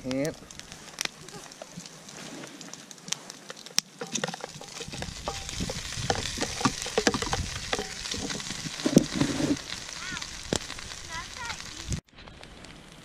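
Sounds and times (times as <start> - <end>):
bread sizzling in hot fat: 0.0 - 13.0
spoon scraping plastic container: 4.0 - 9.6.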